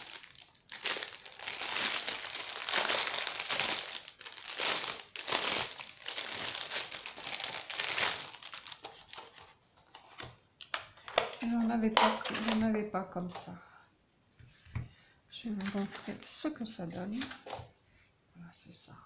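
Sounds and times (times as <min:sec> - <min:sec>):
plastic bag crinkling: 0:00.0 - 0:10.3, 0:15.5 - 0:16.3.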